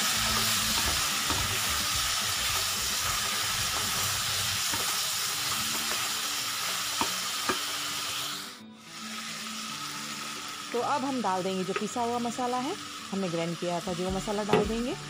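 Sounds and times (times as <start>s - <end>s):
spatula stirring in a pan: 0.0s - 7.8s
vegetables sizzling in hot oil: 0.0s - 15.0s.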